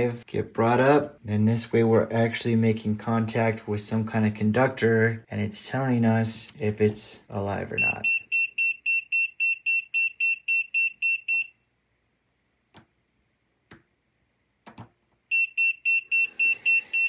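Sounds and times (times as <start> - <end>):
clamp meter beeping rapidly: 15.3 - 17.0.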